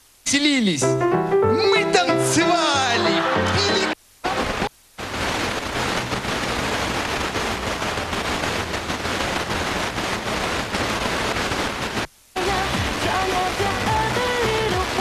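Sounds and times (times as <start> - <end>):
radio static hiss: 0.0 - 15.0.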